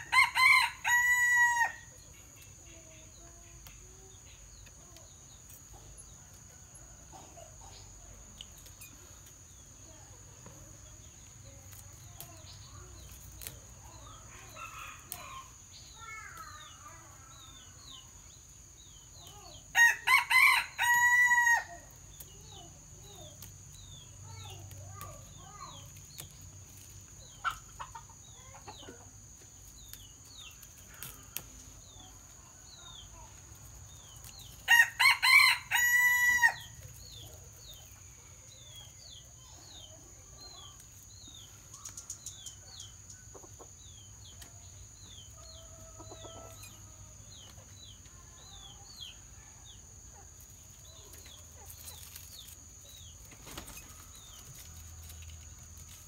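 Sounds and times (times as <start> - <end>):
rooster crowing: 0.0 - 1.9, 19.8 - 21.7, 34.7 - 36.7.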